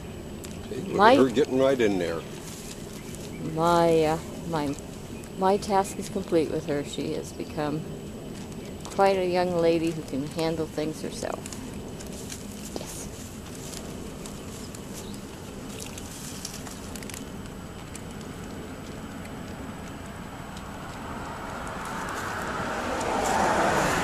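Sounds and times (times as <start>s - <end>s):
cats crunching and licking food: 0.4s - 6.3s, 8.0s - 24.0s
passing car road noise: 16.9s - 24.0s.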